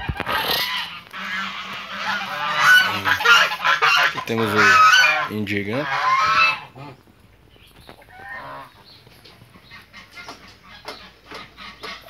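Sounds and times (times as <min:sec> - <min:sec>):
goose honk: 0:00.0 - 0:07.0, 0:08.1 - 0:08.8
chickens clucking: 0:00.0 - 0:12.0.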